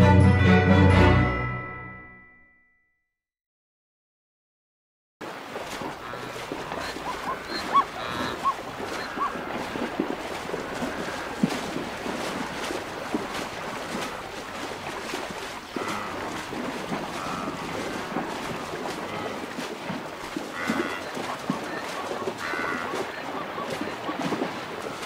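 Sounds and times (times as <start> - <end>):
heavy splashing water: 5.2 - 25.0
animal calls: 5.9 - 11.8, 15.6 - 19.7, 20.3 - 25.0.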